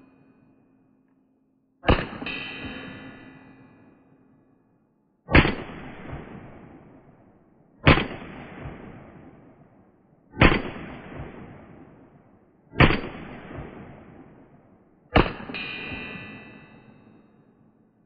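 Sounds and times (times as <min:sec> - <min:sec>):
pistol shots with echo: 0:01.8 - 0:03.5, 0:05.3 - 0:16.8.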